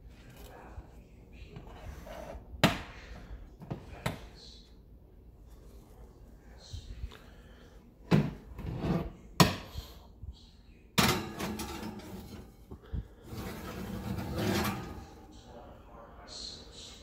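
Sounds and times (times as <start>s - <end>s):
oven door clunks: 11.0s - 12.3s
metal platter clanking on rack: 11.0s - 12.5s, 13.5s - 15.2s
platter scraping across rack: 11.1s - 15.3s.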